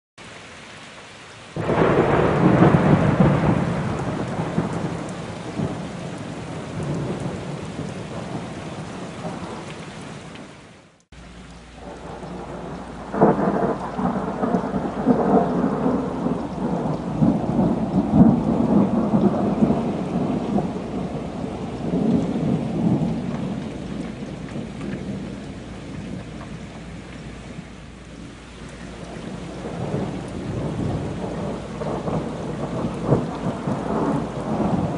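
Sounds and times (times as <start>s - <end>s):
rain hissing: 0.2s - 34.9s
thunder rumbling: 1.6s - 9.7s, 11.7s - 34.9s.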